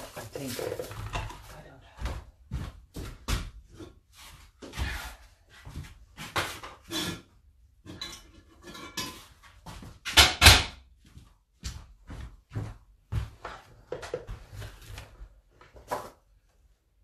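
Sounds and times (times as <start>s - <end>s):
objects clattering and rustling: 0.0s - 1.7s, 5.7s - 10.4s, 13.4s - 16.3s.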